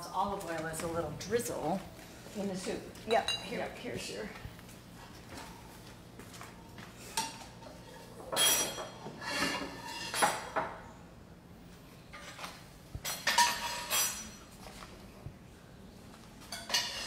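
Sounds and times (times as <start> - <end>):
metal utensils clinking: 8.3 - 10.5.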